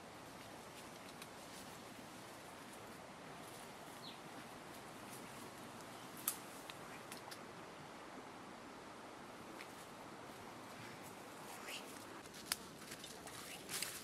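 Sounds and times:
steady background hiss: 0.0s - 14.0s
footsteps in undergrowth: 11.0s - 14.0s.

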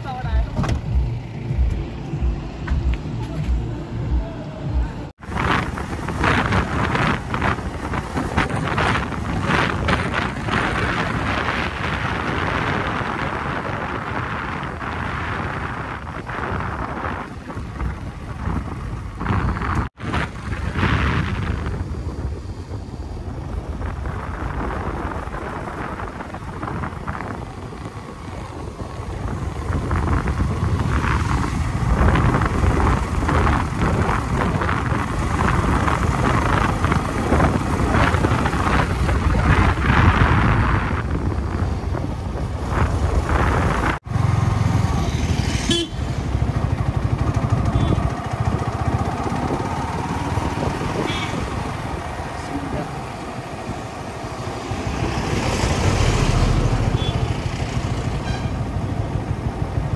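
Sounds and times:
steady rushing noise: 0.0s - 45.6s, 46.2s - 59.9s
motorcycle engine running: 20.5s - 54.8s.

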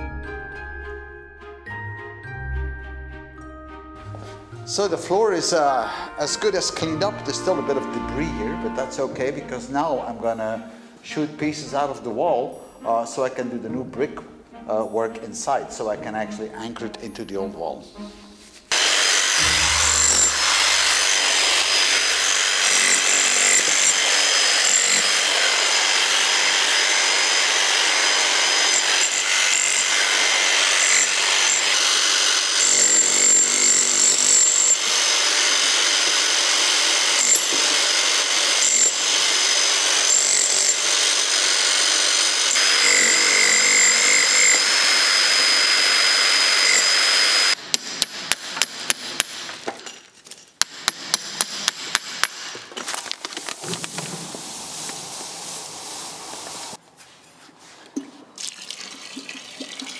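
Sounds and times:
hammer striking chisel: 18.7s - 25.2s, 47.6s - 49.8s, 50.6s - 52.7s
rotary hammer chiselling brick: 47.6s - 49.6s, 50.6s - 52.6s.

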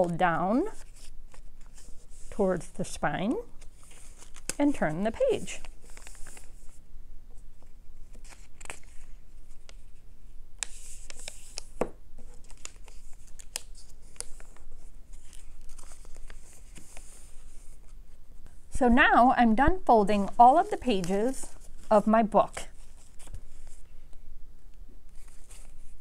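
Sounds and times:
paper rustling and crinkling: 3.6s - 6.8s, 7.6s - 10.0s, 10.6s - 18.6s, 20.2s - 23.9s, 25.1s - 26.0s.

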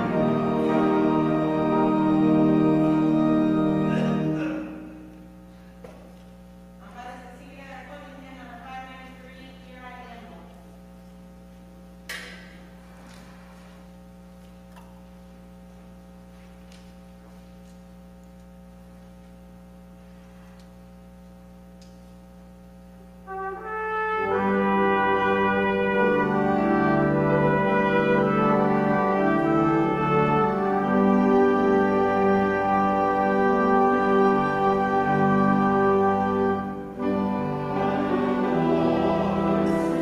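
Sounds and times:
brass-like instrumental music: 0.0s - 5.3s, 23.2s - 40.0s
click: 21.8s - 22.0s.

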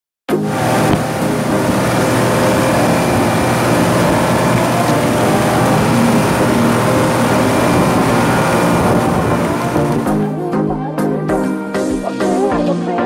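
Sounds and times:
boat engine running steadily: 0.3s - 10.5s.

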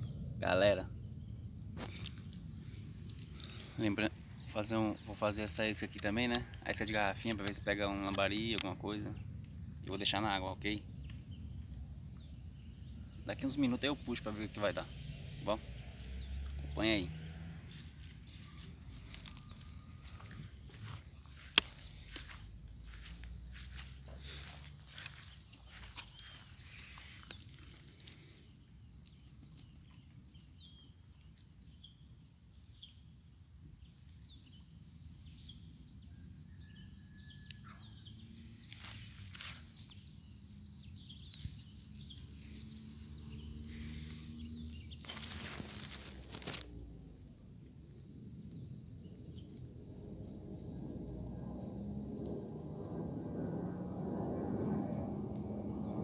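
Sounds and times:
insect chorus trilling: 0.0s - 56.0s
leaves brushing microphone: 16.8s - 28.1s, 43.5s - 46.7s.

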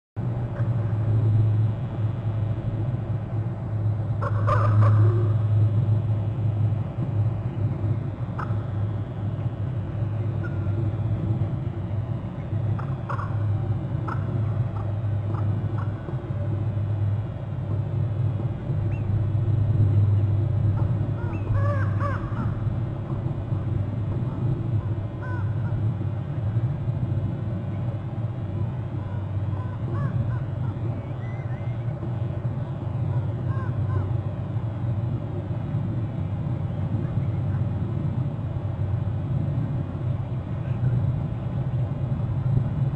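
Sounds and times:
low hum: 0.2s - 42.9s
ravens calling harshly: 4.2s - 5.3s, 12.8s - 13.4s, 20.8s - 22.6s, 25.2s - 25.8s, 29.1s - 30.9s.

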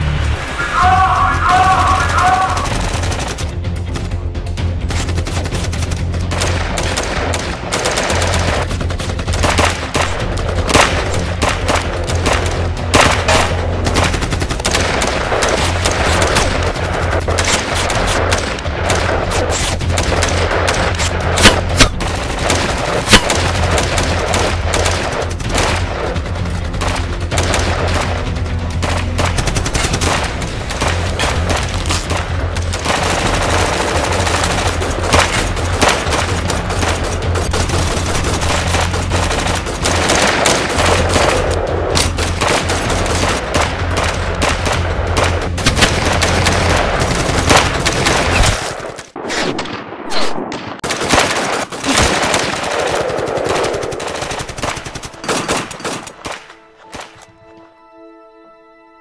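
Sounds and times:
low droning music: 0.0s - 49.9s, 50.5s - 59.0s
automatic gunfire bursts: 50.8s - 56.4s.

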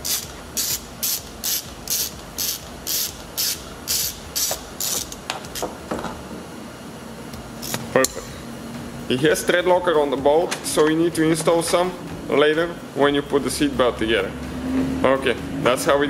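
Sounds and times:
ratchet wrench clicking: 0.0s - 5.2s.

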